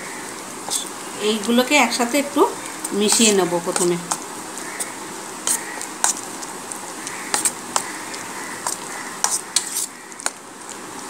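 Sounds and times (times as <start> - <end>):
spoon scraping paste in steel bowl: 3.0 - 4.2, 4.8 - 6.2, 7.3 - 10.4.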